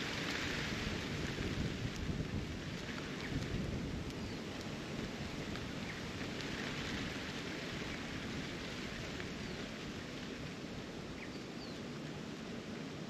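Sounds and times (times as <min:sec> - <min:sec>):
wind buffeting microphone: 0:00.5 - 0:10.6.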